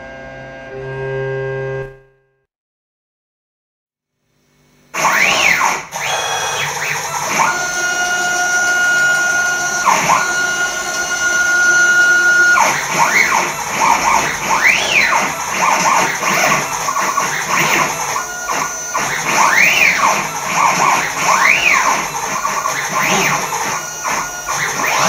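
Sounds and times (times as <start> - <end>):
stepper motors whining: 5.0 - 25.0.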